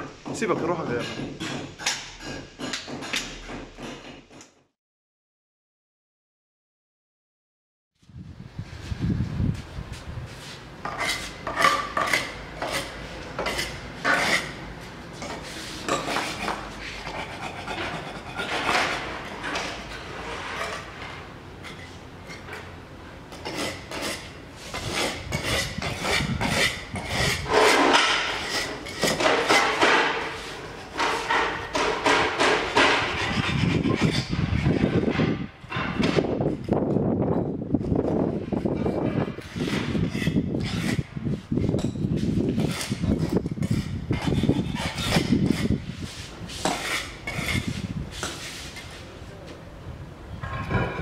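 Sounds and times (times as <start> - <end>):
hand tool scraping tile joints: 0.3 - 4.6, 10.8 - 14.6, 15.2 - 22.7, 23.3 - 36.6, 38.5 - 49.0.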